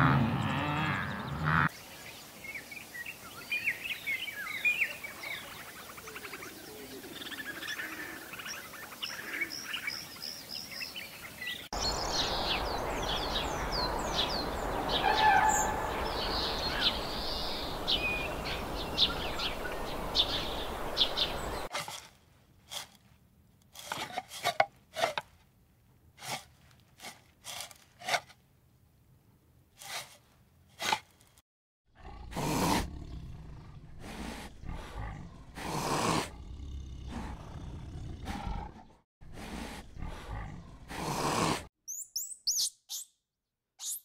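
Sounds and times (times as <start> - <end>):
birds chirping: 0.1 - 21.7, 32.8 - 35.6.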